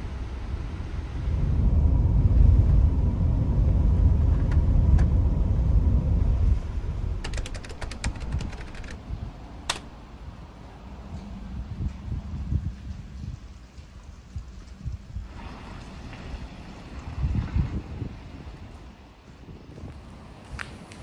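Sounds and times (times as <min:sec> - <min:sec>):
vehicle road rumble: 0:00.0 - 0:21.0
small clicks: 0:07.2 - 0:09.0, 0:09.6 - 0:09.9
sharp click: 0:09.7 - 0:09.9.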